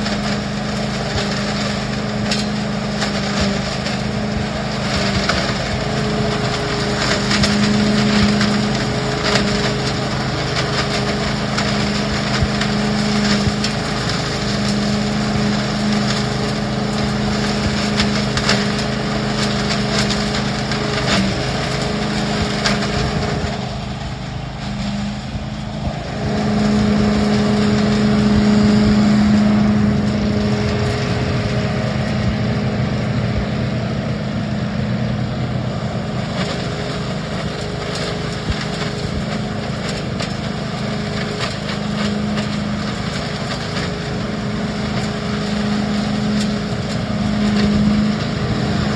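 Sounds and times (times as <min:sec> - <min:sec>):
debris loader fan humming: 0:00.0 - 0:48.9
leaves and twigs clattering: 0:00.0 - 0:48.9.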